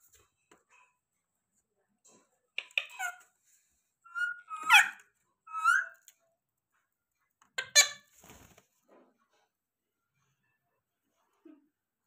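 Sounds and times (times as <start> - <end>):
parakeet squawking: 4.1 - 5.9.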